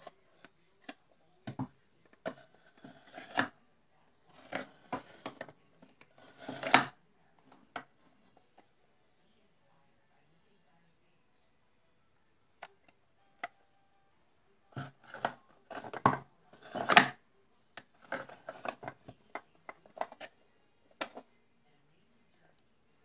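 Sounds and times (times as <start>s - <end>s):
wooden scraping: 1.5s - 3.5s, 4.3s - 6.9s, 14.8s - 17.2s, 18.0s - 20.3s.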